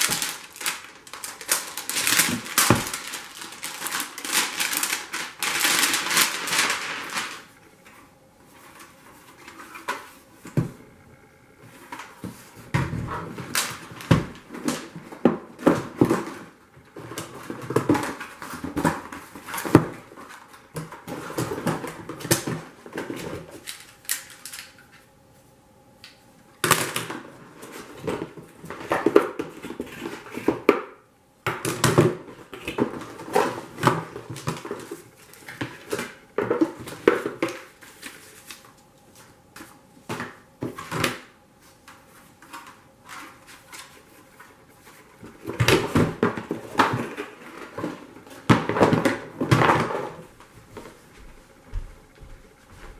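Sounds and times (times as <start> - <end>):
cardboard packaging rustling: 0.0 - 10.6, 31.8 - 50.3.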